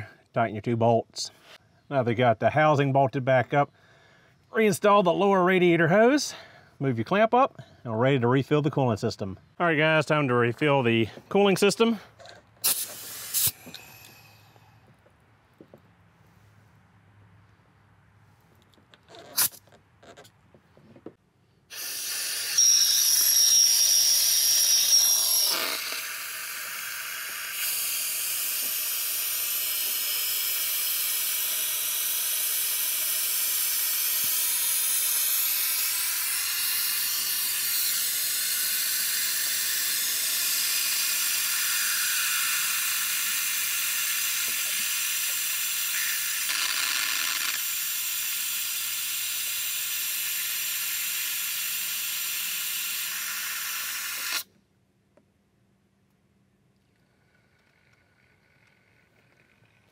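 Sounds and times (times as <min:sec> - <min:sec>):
compressed air hissing: 0:12.6 - 0:14.8, 0:23.6 - 0:31.0, 0:47.8 - 0:54.4.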